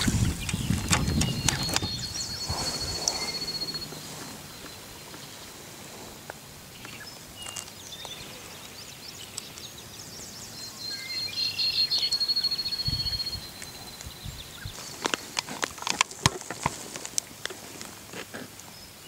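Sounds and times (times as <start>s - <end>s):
bird chirping and trilling: 0.0s - 5.6s, 6.7s - 15.0s.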